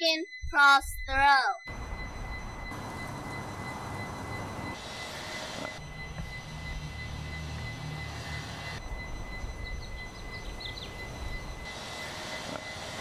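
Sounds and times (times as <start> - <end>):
faint high whine: 0.0 - 13.0
low street rumble: 1.7 - 4.8, 5.5 - 13.0
faint bird chirps: 5.9 - 11.8.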